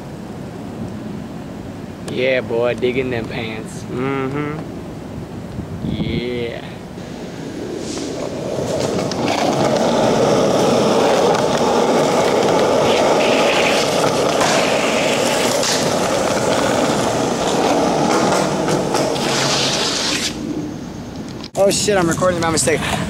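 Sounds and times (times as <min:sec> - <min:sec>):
skateboard wheels rolling on concrete: 0:00.0 - 0:23.0
skateboard clacks: 0:08.0 - 0:20.4.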